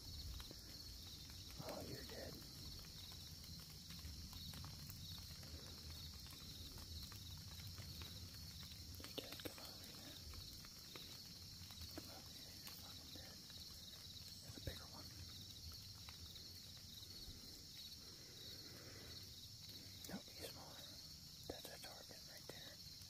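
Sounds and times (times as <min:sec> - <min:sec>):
high-pitched hiss: 0:00.0 - 0:03.4, 0:08.0 - 0:23.0
leaves crackling: 0:00.0 - 0:23.0.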